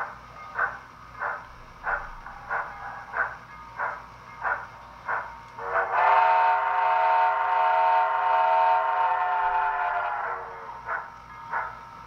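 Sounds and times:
steam exhaust chuffs: 0.0s - 12.0s
steam whistle: 5.6s - 11.0s.

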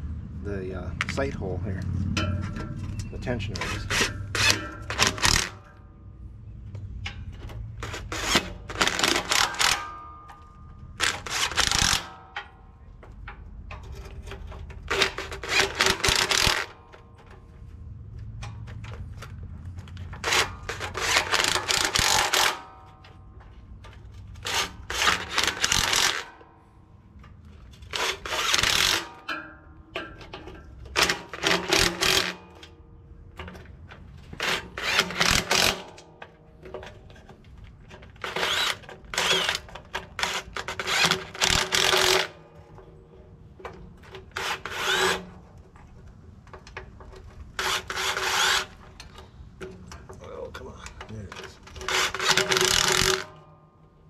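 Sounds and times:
cordless drill whining: 24.4s - 26.2s, 34.4s - 35.8s, 38.2s - 42.3s, 44.3s - 45.2s, 47.6s - 48.8s.

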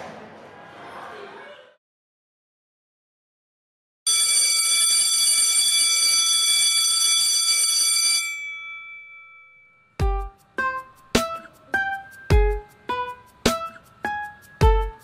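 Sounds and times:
electric school bell ringing: 4.1s - 10.0s.

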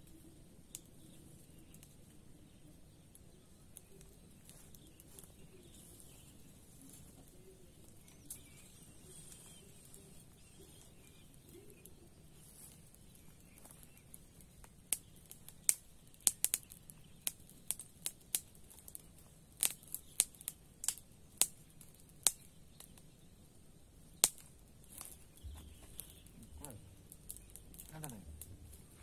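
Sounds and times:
faint background hiss: 0.0s - 29.0s
sharp clicks and snaps: 14.6s - 23.0s, 24.2s - 28.8s.

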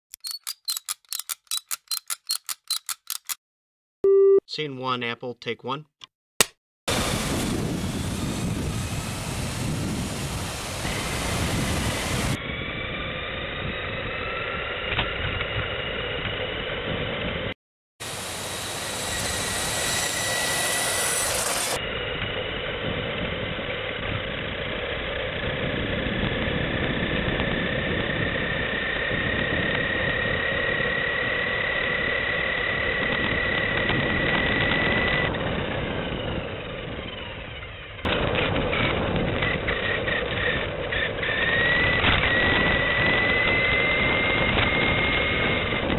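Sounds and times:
toy truck motor whining: 0.1s - 3.4s, 18.7s - 21.8s.

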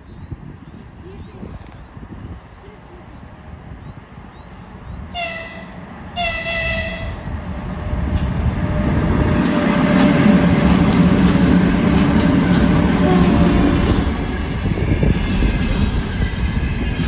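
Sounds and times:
rumble of passing freight train: 0.0s - 17.0s
locomotive horn blasts: 5.2s - 7.2s, 13.0s - 13.7s.

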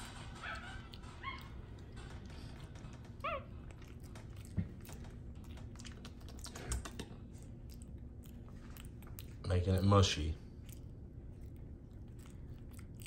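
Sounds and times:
monkey eating wet mouth clicks: 3.8s - 9.9s.

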